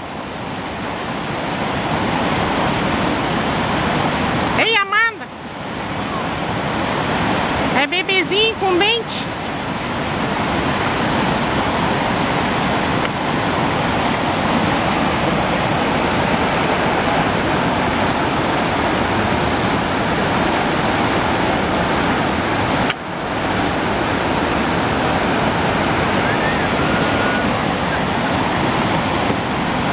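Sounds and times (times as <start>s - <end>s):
waterfall rushing over rock: 0.0s - 29.9s.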